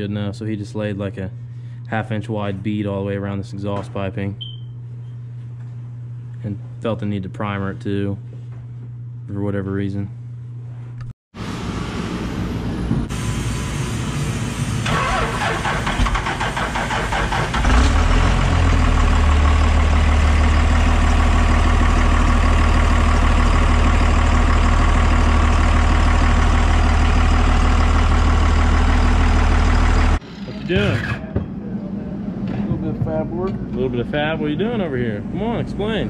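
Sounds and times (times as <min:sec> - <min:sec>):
diesel engine cranking and idling: 0:11.6 - 0:36.0.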